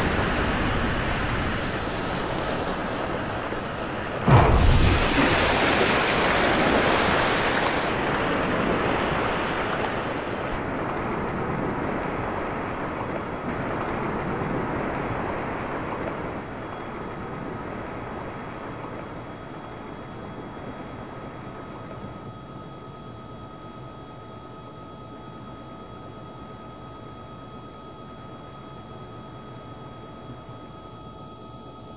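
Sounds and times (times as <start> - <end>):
faint steady tones: 0.0 - 31.9
explosion roar: 4.2 - 7.6.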